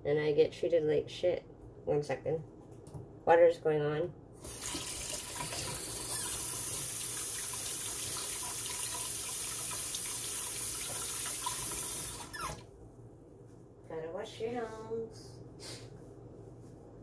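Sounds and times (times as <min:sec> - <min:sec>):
tap water running into sink: 0:04.4 - 0:12.6.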